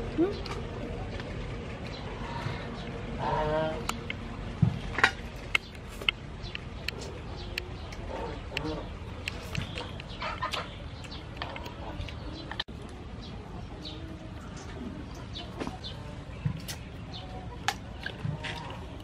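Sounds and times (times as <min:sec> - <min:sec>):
birds calling: 0:00.0 - 0:19.0.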